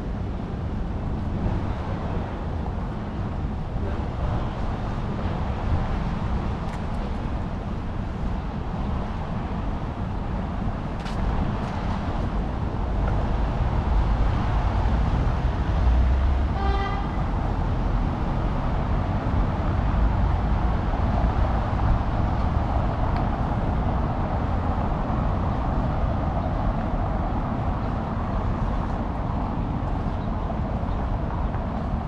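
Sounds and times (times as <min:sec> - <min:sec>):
street traffic rumble: 0:00.0 - 0:32.0
vehicle horn toot: 0:16.5 - 0:17.2.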